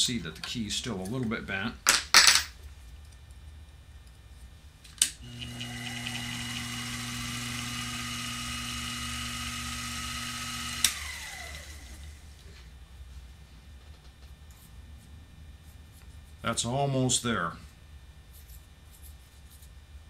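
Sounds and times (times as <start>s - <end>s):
lathe motor humming and whining: 5.2s - 12.3s.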